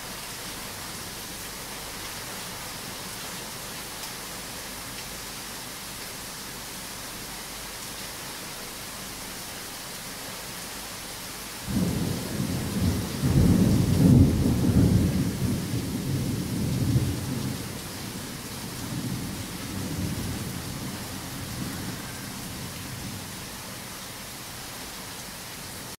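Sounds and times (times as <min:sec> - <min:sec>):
heavy rain hissing: 0:00.0 - 0:26.0
thunder rumbling: 0:11.7 - 0:23.3.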